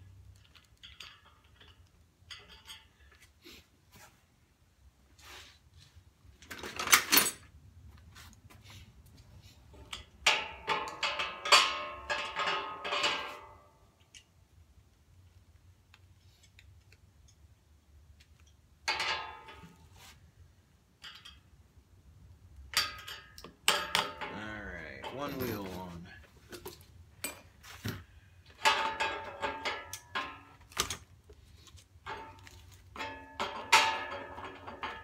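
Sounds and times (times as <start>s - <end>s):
metal parts clanking: 0.3s - 3.1s, 6.4s - 7.5s, 9.8s - 14.3s, 22.6s - 31.1s, 32.0s - 35.0s.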